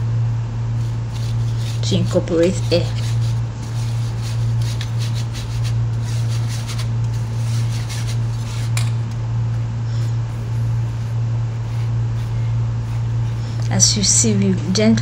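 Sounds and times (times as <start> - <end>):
steady low hum: 0.0 - 15.0
whisk scraping metal sieve: 0.9 - 8.8.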